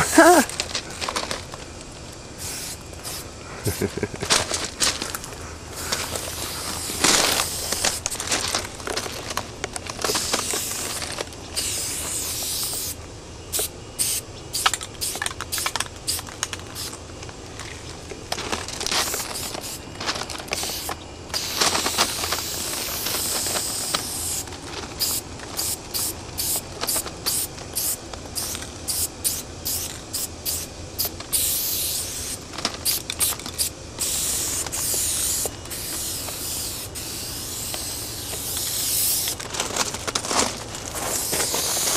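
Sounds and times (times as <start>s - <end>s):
spray paint can hissing: 2.4s - 4.2s, 5.0s - 8.4s, 10.0s - 17.0s, 18.9s - 19.8s, 20.5s - 24.4s, 25.0s - 39.4s, 40.9s - 41.9s.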